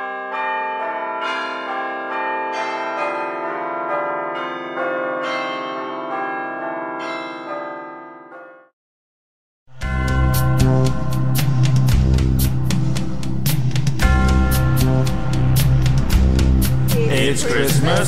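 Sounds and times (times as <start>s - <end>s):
bells pealing: 0.0s - 8.6s
music with drums: 9.8s - 18.0s.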